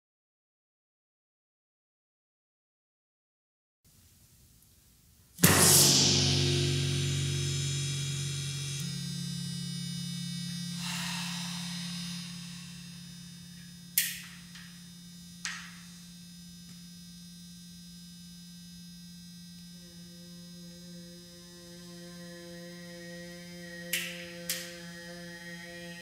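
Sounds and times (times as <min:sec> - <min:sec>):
low electronic hum on drum: 0:05.2 - 0:26.0
sharp clicks: 0:14.0 - 0:14.7, 0:23.9 - 0:24.7
person humming into drumhead: 0:19.8 - 0:26.0.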